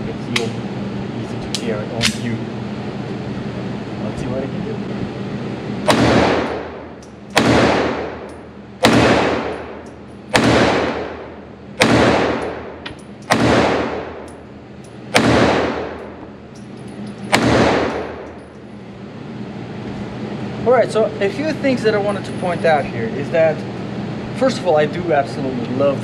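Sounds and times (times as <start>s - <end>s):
pistol shots with echo: 5.8s - 14.3s, 15.1s - 16.2s, 17.3s - 18.3s.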